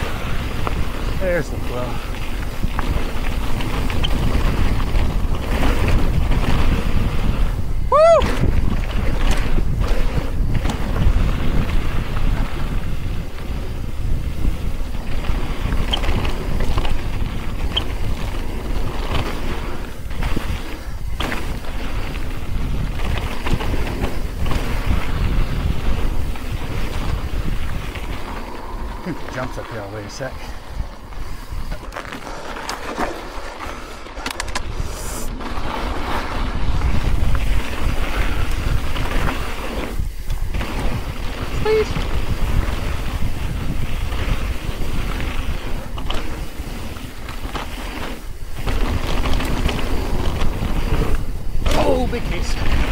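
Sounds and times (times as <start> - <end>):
bike clicks and rattles: 0.0 - 52.9
bike tyres rolling on gravel: 0.0 - 52.9
wind on microphone: 0.0 - 52.9
brief hiss: 34.8 - 35.4.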